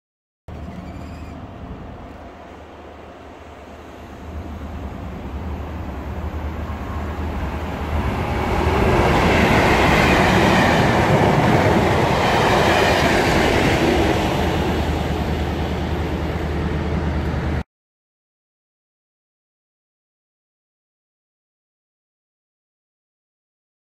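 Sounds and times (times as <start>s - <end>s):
diesel locomotive engine: 0.5s - 17.6s.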